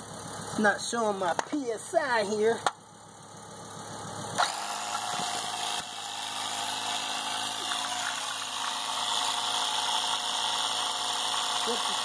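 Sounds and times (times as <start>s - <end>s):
electric air compressor humming: 3.1s - 12.0s.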